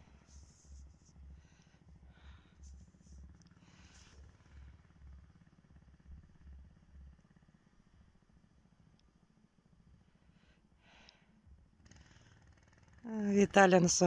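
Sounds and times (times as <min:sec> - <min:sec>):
distant small engine puttering: 0:11.8 - 0:13.1.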